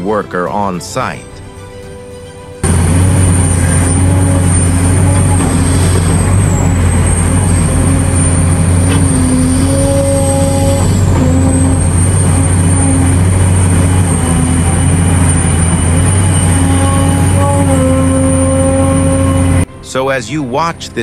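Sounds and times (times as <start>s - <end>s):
excavator diesel drone: 1.7s - 21.0s
hydraulic whine: 2.4s - 19.7s.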